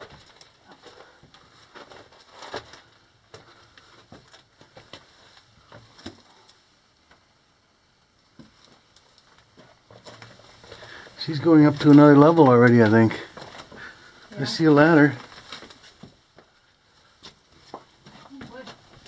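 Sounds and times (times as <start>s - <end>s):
footsteps crunching on rock rubble: 15.0s - 19.0s.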